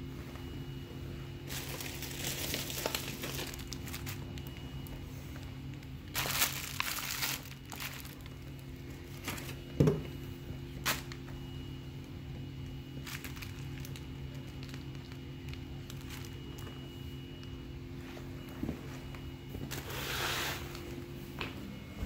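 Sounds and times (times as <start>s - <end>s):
steady low hum: 0.0s - 22.0s
plastic packaging crinkling: 1.4s - 9.8s, 10.8s - 11.4s, 12.7s - 17.6s.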